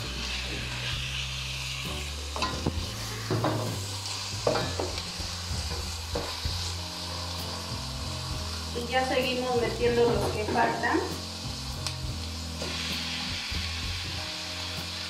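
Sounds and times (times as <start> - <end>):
meat sizzling in a pan: 0.0 - 15.0
utensil scraping and knocking pan: 2.4 - 3.8.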